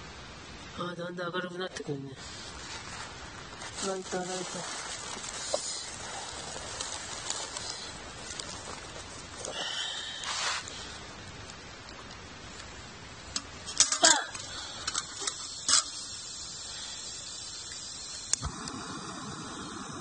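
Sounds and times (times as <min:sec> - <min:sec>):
gas burner hissing: 0:02.2 - 0:11.7, 0:13.0 - 0:20.0
gas burner lighting pop: 0:17.7 - 0:20.0.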